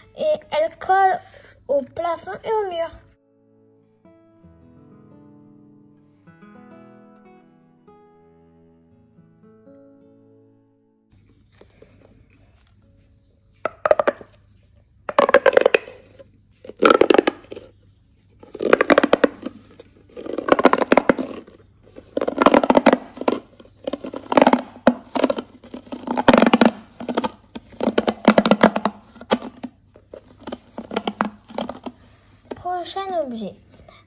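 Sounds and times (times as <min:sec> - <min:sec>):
plastic pop tube crackling: 0:13.6 - 0:14.4, 0:15.1 - 0:17.8, 0:18.4 - 0:32.7.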